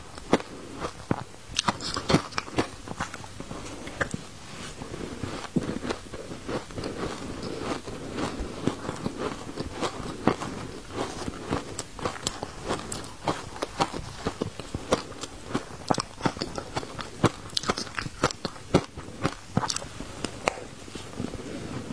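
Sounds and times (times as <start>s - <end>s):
person crunching ice: 5.6s - 19.9s.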